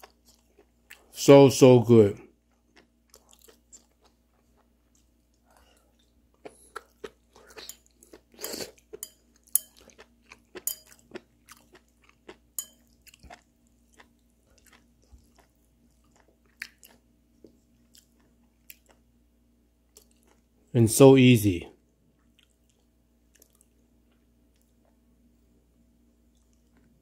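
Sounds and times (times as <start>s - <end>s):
person chewing crunchily: 0.0s - 1.2s, 2.3s - 19.1s, 19.9s - 20.5s, 22.2s - 25.0s.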